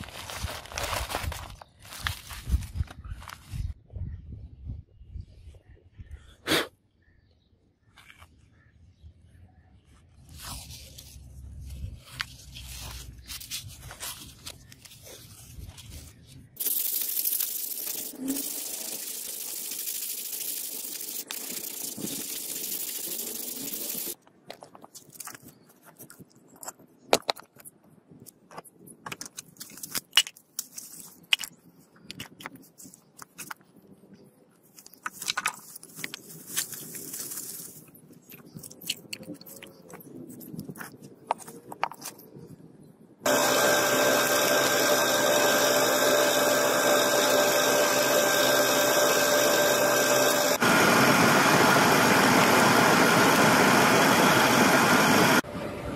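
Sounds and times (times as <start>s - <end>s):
loud steady hiss: 16.6s - 24.2s.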